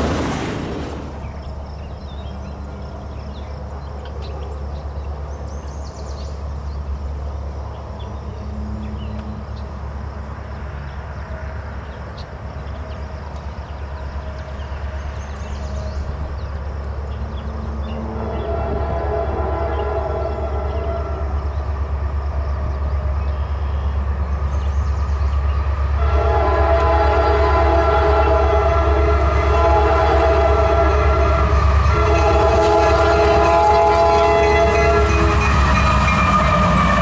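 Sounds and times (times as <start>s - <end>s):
freight train rumble: 0.0s - 37.0s
birds chirping: 0.9s - 26.3s
locomotive horn: 17.5s - 24.0s, 25.7s - 37.0s.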